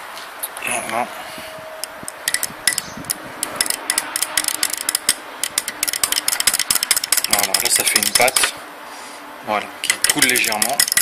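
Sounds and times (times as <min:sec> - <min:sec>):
metal rod scraping glass jar: 0:01.8 - 0:08.5, 0:09.8 - 0:11.0.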